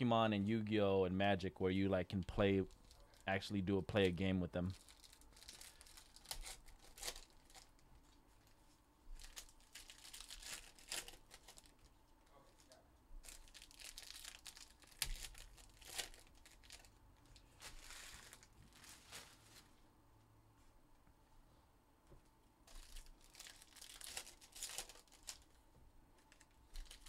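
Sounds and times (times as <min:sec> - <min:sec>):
foil wrappers tearing and crinkling: 0:04.7 - 0:07.8, 0:09.2 - 0:11.9, 0:13.2 - 0:17.0, 0:17.6 - 0:19.5, 0:22.7 - 0:25.6, 0:26.3 - 0:27.0.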